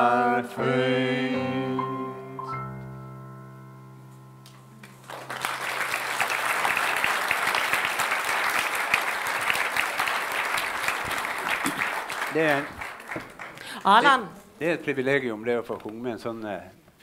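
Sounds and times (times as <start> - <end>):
audience applause: 4.8 - 14.2.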